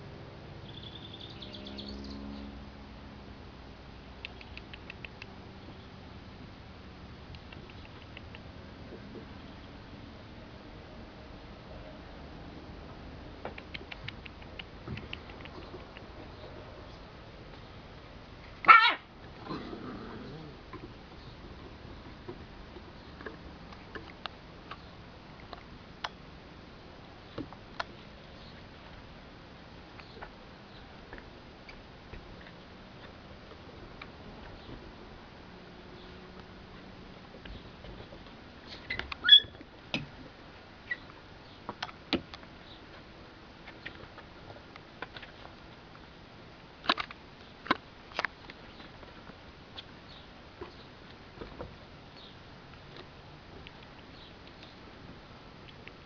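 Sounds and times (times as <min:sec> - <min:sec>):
high squeak: 0:39.2 - 0:39.6.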